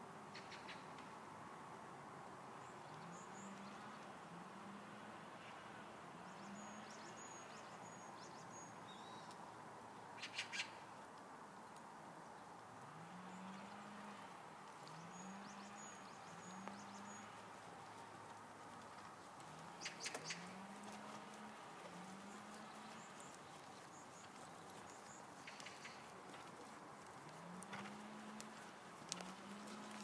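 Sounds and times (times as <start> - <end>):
cluster of clicks: 17.9 - 30.0.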